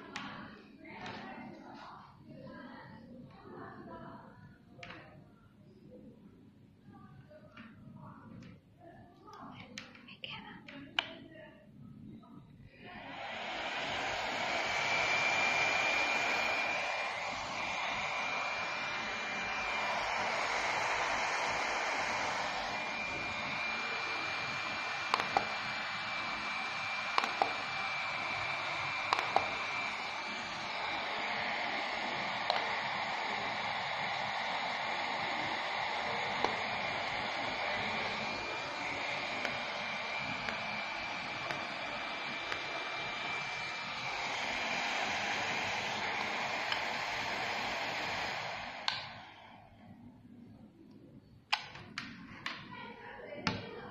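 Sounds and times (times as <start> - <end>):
cooling fan whirring: 12.7 - 49.6
sharp clicks of flash firing: 27.2 - 27.6, 51.5 - 52.1.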